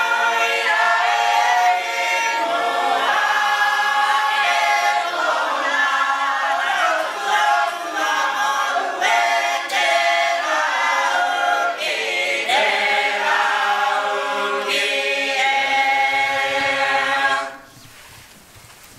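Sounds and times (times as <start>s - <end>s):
choir singing unaccompanied in parts: 0.0s - 17.7s.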